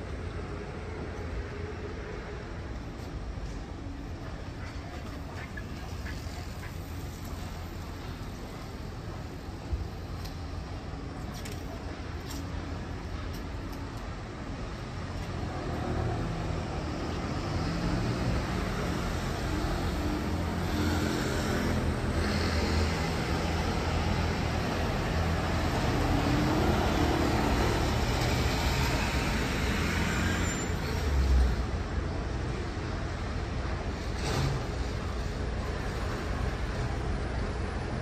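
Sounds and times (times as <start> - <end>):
road traffic passing: 0.0 - 38.0.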